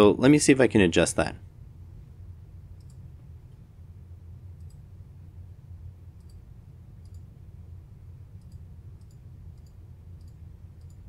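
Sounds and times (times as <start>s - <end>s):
faint low hum: 0.0s - 11.0s
computer mouse clicking: 2.8s - 3.0s, 4.6s - 4.8s, 6.2s - 6.4s, 7.0s - 7.3s, 8.4s - 11.0s.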